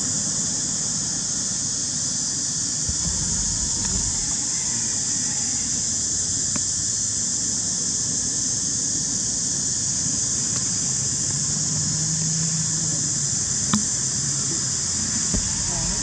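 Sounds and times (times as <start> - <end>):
high-pitched hiss: 0.0 - 16.0
low background rumble: 2.9 - 4.6, 15.2 - 16.0
faint low hum: 2.9 - 4.9, 13.8 - 16.0.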